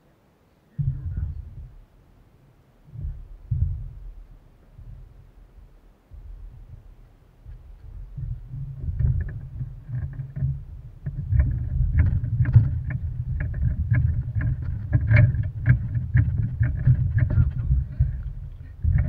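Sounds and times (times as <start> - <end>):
wind buffeting microphone: 0.8 - 1.9, 2.9 - 19.0.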